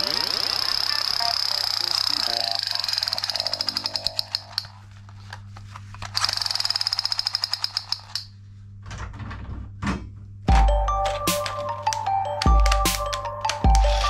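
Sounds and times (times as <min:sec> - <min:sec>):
electronic toy jingle: 0:00.0 - 0:04.4, 0:10.5 - 0:14.0
toy gun electronic rattle: 0:00.0 - 0:04.8, 0:06.0 - 0:08.3.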